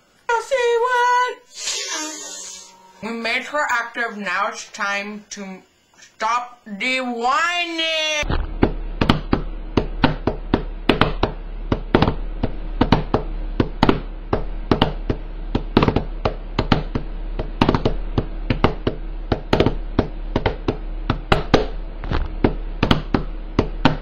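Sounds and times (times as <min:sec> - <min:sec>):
steady low hum: 0:00.0 - 0:07.4, 0:08.2 - 0:24.0
rapid uneven knocking: 0:08.6 - 0:24.0.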